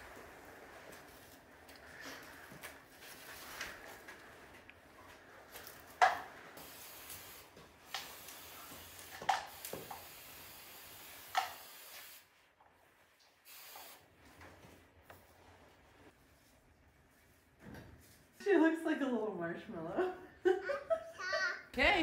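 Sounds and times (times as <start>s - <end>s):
aerosol can spraying hiss: 6.6s - 12.3s, 13.5s - 14.0s.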